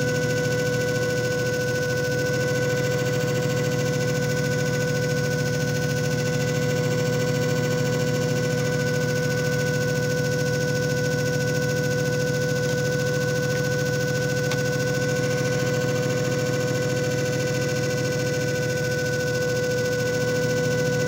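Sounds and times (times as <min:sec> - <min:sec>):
machine motor humming and whining: 0:00.0 - 0:21.0.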